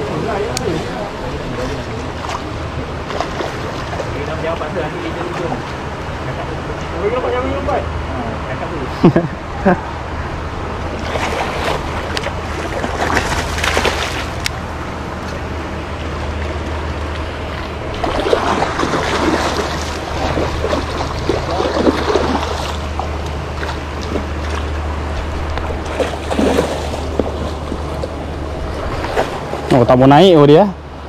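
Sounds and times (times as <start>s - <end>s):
fish splashing at surface: 11.0s - 14.4s, 17.9s - 24.8s, 25.6s - 29.7s.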